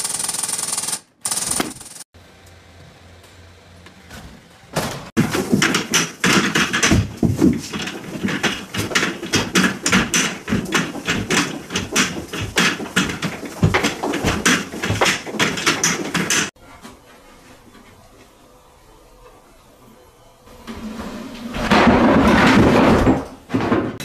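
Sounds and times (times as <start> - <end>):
rapid banging and knocking: 5.1 - 16.6, 21.5 - 24.0.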